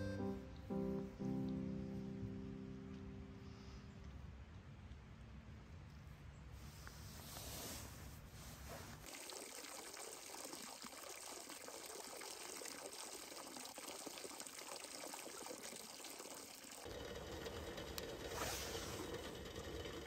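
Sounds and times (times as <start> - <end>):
low steady rumble: 0.0 - 7.3
water trickling into basin: 9.0 - 18.2.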